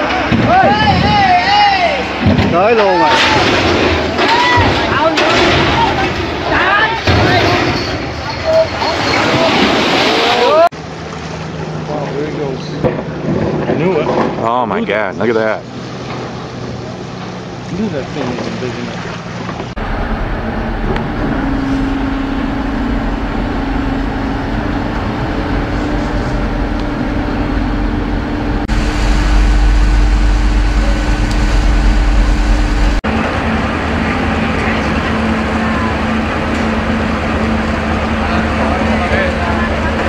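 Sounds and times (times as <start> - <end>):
large engines humming: 15.1 - 40.0.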